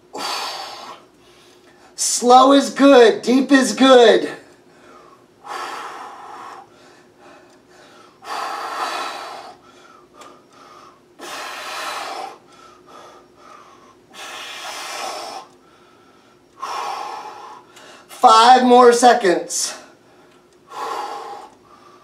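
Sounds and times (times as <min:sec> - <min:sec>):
man breathing out hard: 0:00.1 - 0:01.6, 0:04.7 - 0:18.1, 0:19.9 - 0:22.0
quiet breathing: 0:04.4 - 0:18.1, 0:19.7 - 0:22.0.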